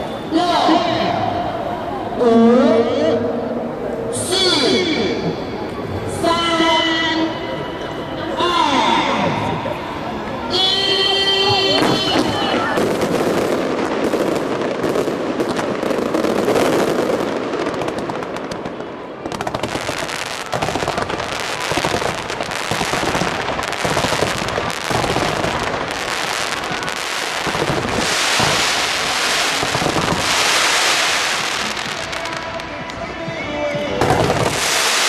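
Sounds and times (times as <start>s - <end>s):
fireworks pops and bangs: 11.5s - 35.0s
fireworks hissing crackle: 11.6s - 35.0s.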